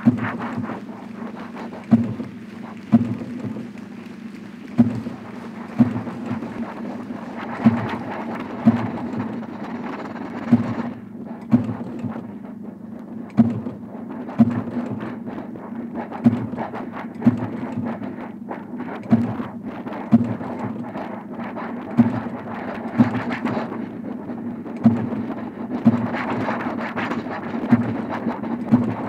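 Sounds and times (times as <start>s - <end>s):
heavy machine thumps: 0.0s - 3.9s, 10.4s - 12.3s, 13.3s - 13.8s
clattering hissing machinery: 0.0s - 15.3s.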